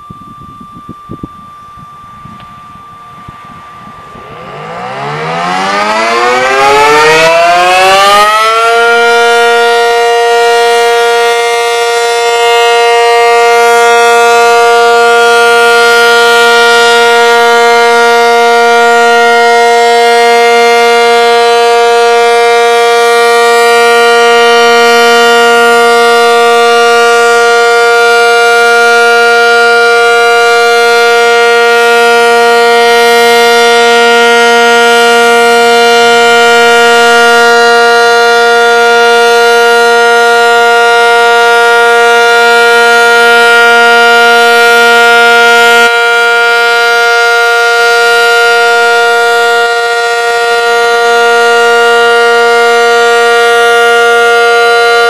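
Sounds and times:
warning siren winding up: 0.0 - 55.0.

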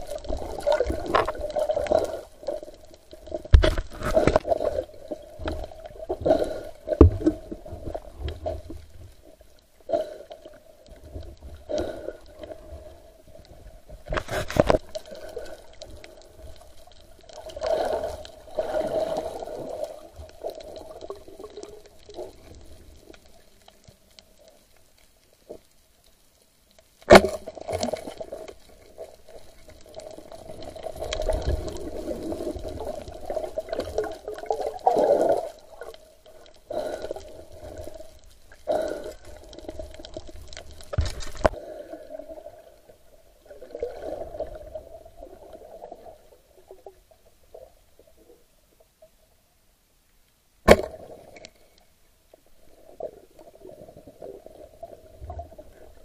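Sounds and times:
muffled water sloshing and gurgling: 0.0 - 24.7, 27.1 - 48.5.

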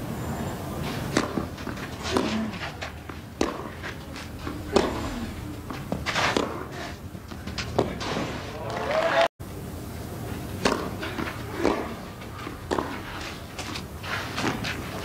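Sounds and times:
low murmur of crowd: 0.0 - 15.0
racket striking tennis ball: 1.1 - 4.0, 4.7 - 5.3, 5.9 - 6.8, 10.6 - 15.0.

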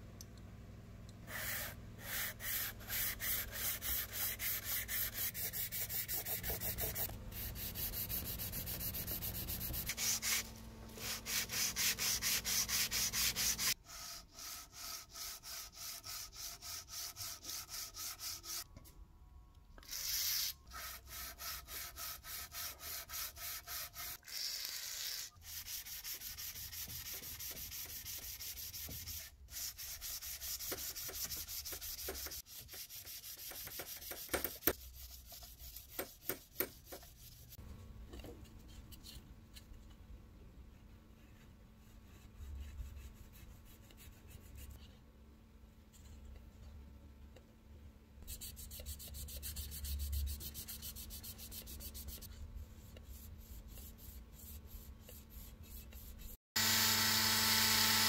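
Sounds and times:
sanding metal with abrasive paper: 1.4 - 18.6, 19.9 - 37.6.

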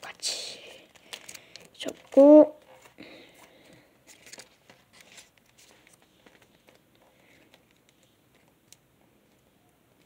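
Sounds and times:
paper rustling and creasing: 0.9 - 8.5.

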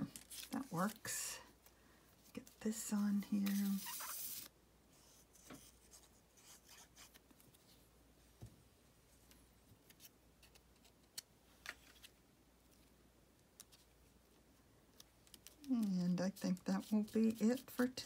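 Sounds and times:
paper rustling: 0.1 - 1.1, 3.4 - 4.5.

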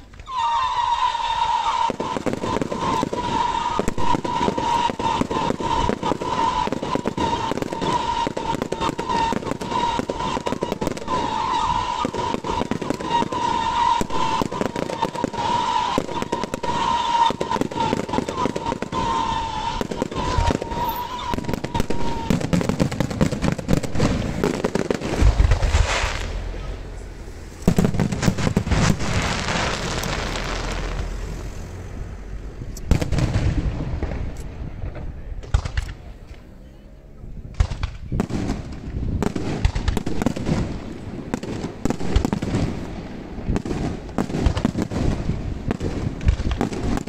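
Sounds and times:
high firework whistle: 0.0 - 26.8, 27.5 - 31.7
fireworks bangs and crackling: 0.0 - 36.6, 37.3 - 47.0
deep firework booms: 1.5 - 36.2, 37.4 - 47.0.

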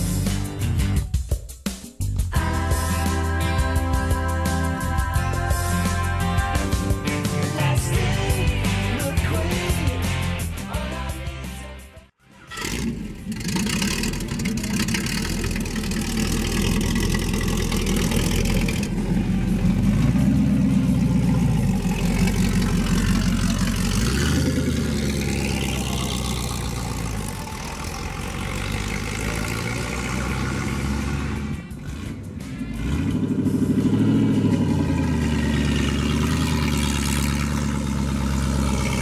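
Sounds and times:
motorcycle engine running: 12.5 - 39.0.

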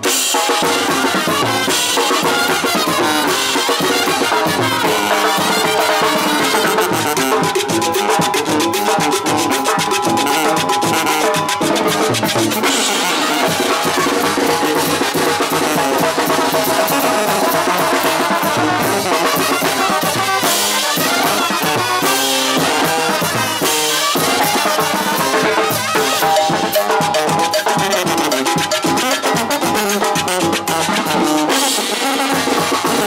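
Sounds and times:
snare drum beat: 0.0 - 33.0
sousaphones and trumpets: 0.0 - 33.0.

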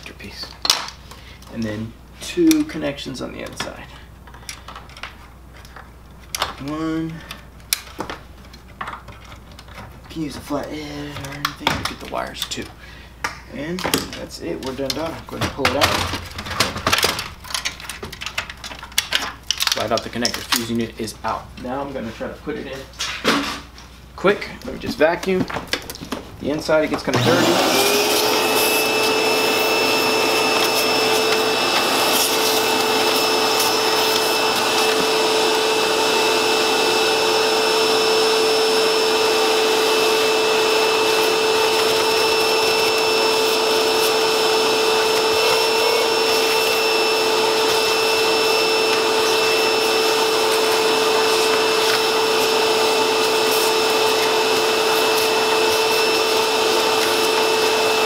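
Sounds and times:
vacuum cleaner running: 27.1 - 58.0.

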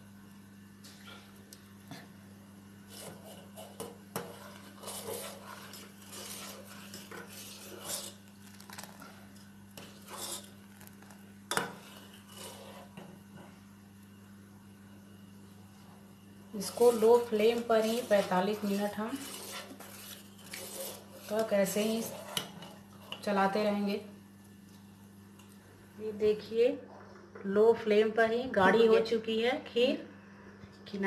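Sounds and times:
ladle scraping a steel pot: 2.9 - 9.1, 9.8 - 13.0, 16.6 - 23.2.

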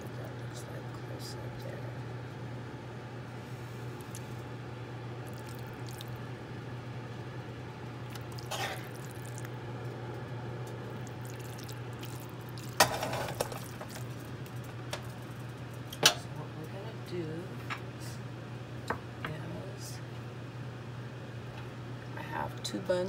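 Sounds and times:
spoon stirring wet mixture: 5.2 - 6.2, 8.1 - 9.8, 10.6 - 16.0.

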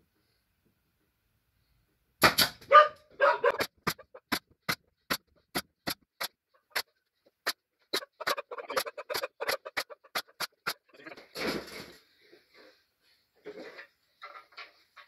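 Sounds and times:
nail gun firing into wood: 2.2 - 2.7.

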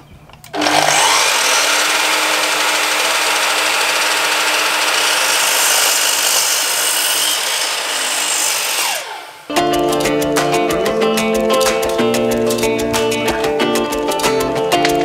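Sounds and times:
mitre saw motor whine: 0.5 - 9.5
saw cutting through wood: 0.6 - 9.5.

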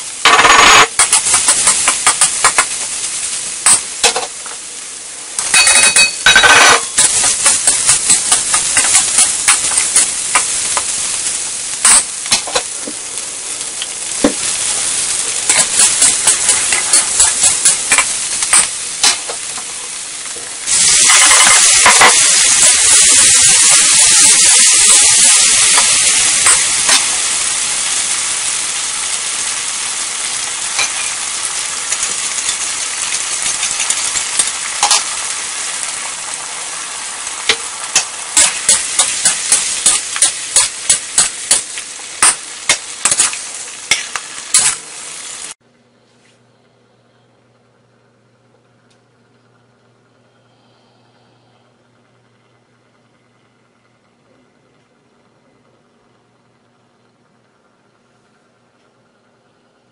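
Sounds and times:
food sizzling in a wok: 0.0 - 45.6.

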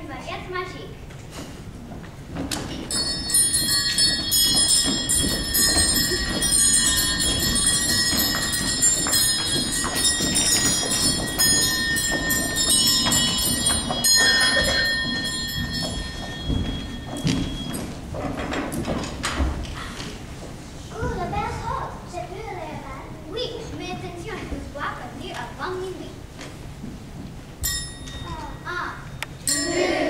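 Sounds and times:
music with bell-like chimes: 2.8 - 18.1, 27.6 - 30.0.

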